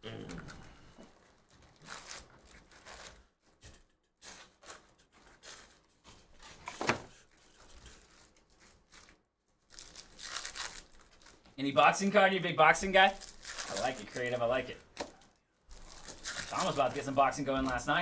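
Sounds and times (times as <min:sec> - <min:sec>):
foil packs rustling: 0:04.2 - 0:18.0.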